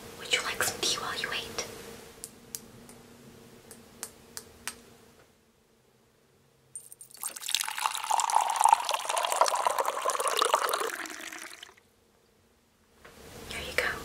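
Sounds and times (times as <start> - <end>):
liquid pouring into a cup: 6.8 - 11.8.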